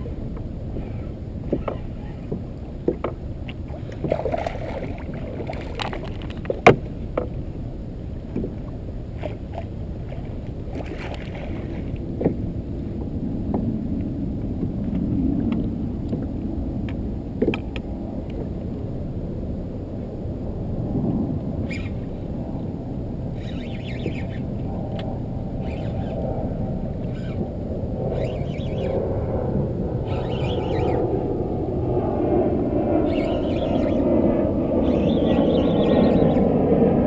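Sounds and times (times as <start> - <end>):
water splashing and lapping: 0.0 - 7.4, 8.3 - 13.0.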